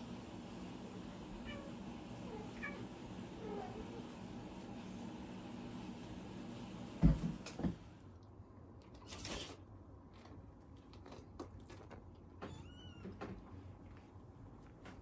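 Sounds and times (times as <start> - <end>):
cats rustling and scratching: 8.9 - 15.0.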